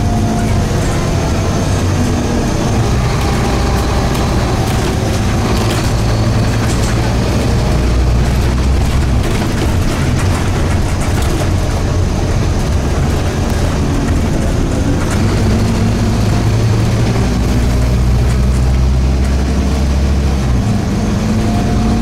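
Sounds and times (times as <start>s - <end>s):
bus diesel engine running: 0.0s - 22.0s
clicks and rattles: 2.9s - 19.5s.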